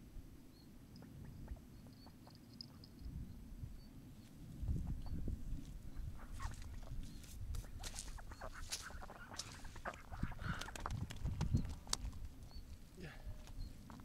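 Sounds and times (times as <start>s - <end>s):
wind rumble on microphone: 2.9s - 14.0s
ducks quacking: 5.9s - 7.0s, 7.6s - 10.8s.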